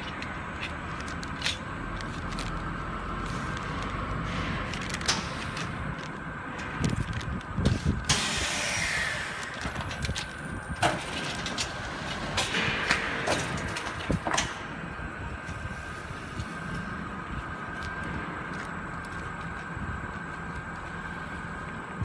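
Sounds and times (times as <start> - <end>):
packaging machine humming: 0.9 - 18.1
air hissing: 7.6 - 10.5.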